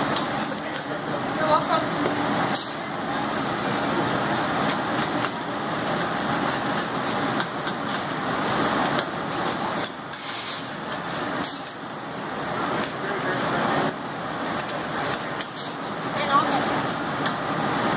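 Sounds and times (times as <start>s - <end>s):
pizza wheel clicking and scraping: 2.6s - 8.2s, 8.8s - 12.0s.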